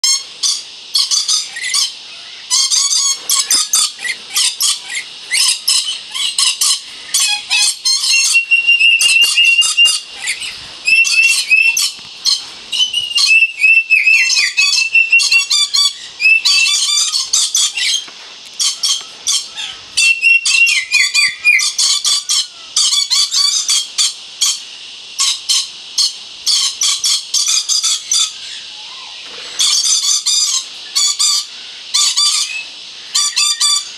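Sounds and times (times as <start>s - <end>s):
parrots screeching: 0.0s - 18.0s, 18.6s - 24.6s, 25.2s - 33.9s
gliding whistled notes: 7.9s - 12.0s.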